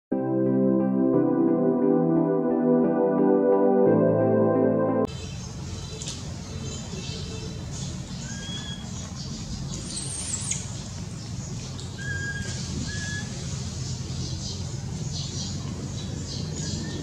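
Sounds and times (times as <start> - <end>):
whistled animal calls: 8.2 - 9.0, 11.9 - 13.4.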